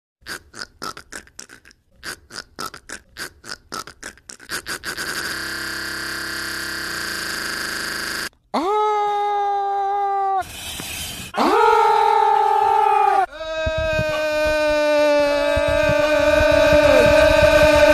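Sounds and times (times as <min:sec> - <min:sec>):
man sputtering mouth noise: 0:00.2 - 0:07.6, 0:13.3 - 0:17.9.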